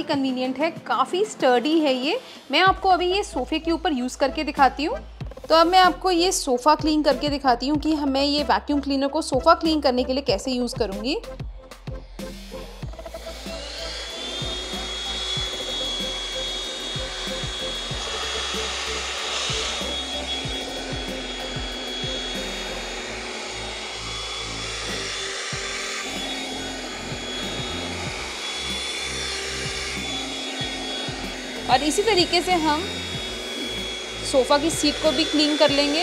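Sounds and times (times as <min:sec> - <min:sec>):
handheld vacuum running: 0:00.0 - 0:08.1, 0:12.3 - 0:36.0
music with drum beat: 0:04.5 - 0:06.0, 0:06.8 - 0:08.5, 0:09.3 - 0:22.8, 0:25.5 - 0:29.0, 0:29.6 - 0:34.0
thin whine rising in pitch: 0:11.7 - 0:36.0.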